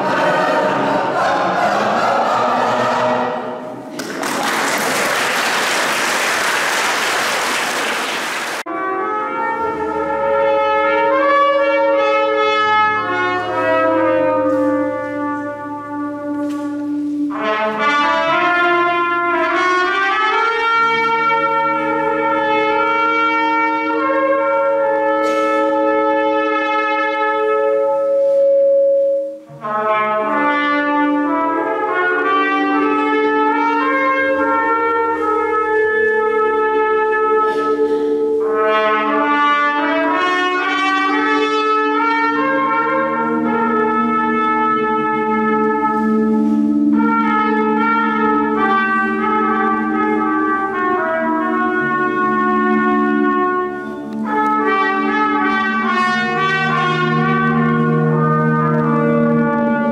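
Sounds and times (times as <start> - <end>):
choir singing sustained chords: 0.0 - 4.0
applause: 3.9 - 8.6
trumpet playing slow held notes: 8.6 - 59.9.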